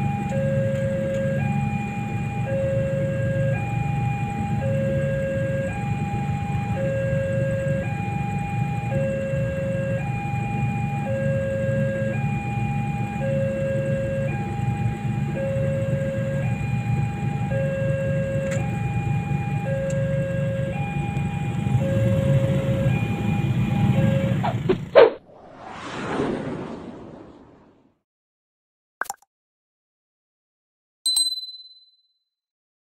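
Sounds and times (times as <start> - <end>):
two-tone crossing alarm: 0.0 - 24.7
motorcycle engines idling: 21.0 - 24.9.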